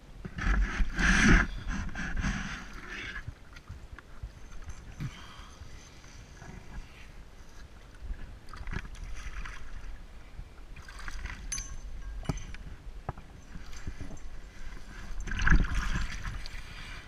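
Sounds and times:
water sloshing and splashing: 0.4s - 17.0s
metallic clink: 11.5s - 12.6s.

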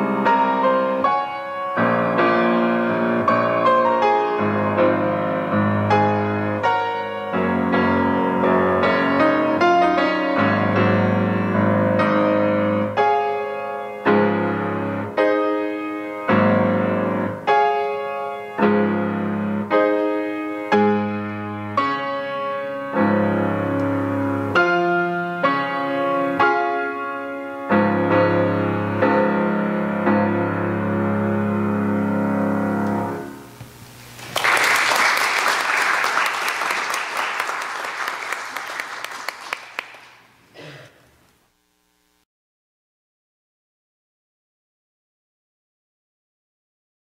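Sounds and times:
grand piano playing chords: 0.0s - 34.2s
applause: 34.2s - 40.3s.

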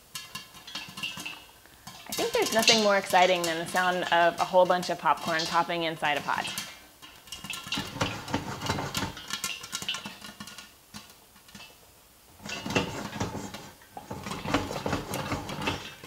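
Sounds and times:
pot being shaken: 0.0s - 11.8s
popcorn popping in a pot: 0.0s - 16.0s.

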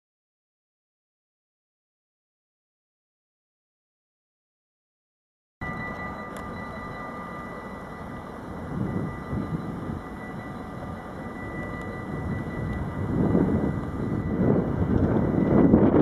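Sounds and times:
diesel locomotive droning: 5.6s - 16.0s.

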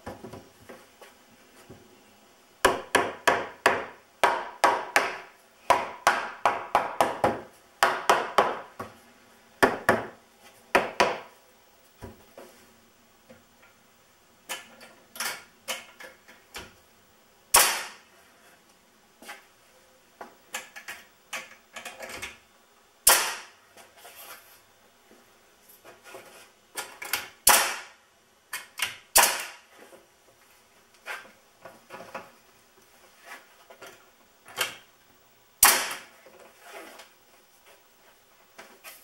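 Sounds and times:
nail gun shots: 17.5s - 18.0s, 23.0s - 23.6s, 27.4s - 28.0s, 29.1s - 29.6s, 35.6s - 36.1s.

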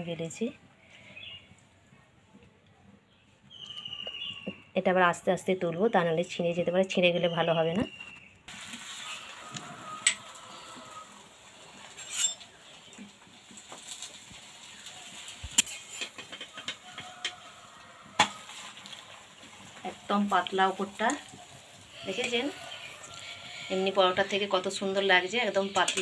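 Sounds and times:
faint sizzle: 8.5s - 26.0s
spatula scraping metal frying pan: 8.6s - 12.8s, 15.6s - 17.4s, 25.4s - 26.0s.

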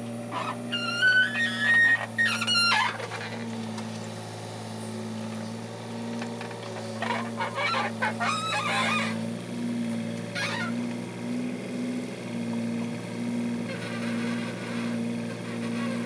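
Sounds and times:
excavator diesel engine: 0.0s - 16.0s
high squeals: 0.3s - 3.4s, 6.8s - 9.2s.

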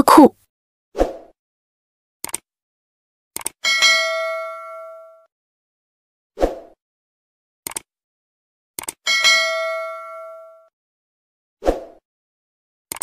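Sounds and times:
mouse clicks: 2.2s - 2.4s.

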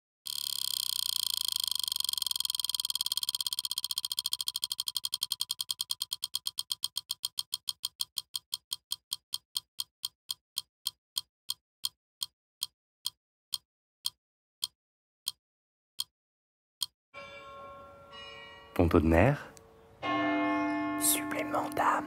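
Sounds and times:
clock-like ticking: 0.3s - 15.4s.

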